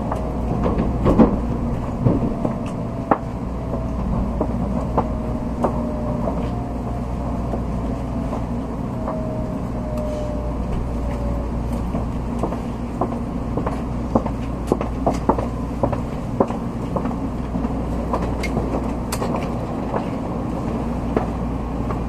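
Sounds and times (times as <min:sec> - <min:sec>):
faint falling whine: 0:00.0 - 0:12.5
train cabin rumble: 0:00.0 - 0:22.0.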